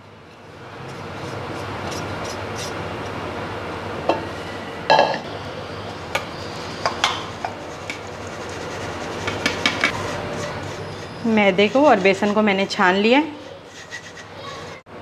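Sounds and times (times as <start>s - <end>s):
metal bowl ringing clang: 4.9s - 5.3s
flour scraping and sifting: 7.6s - 14.8s.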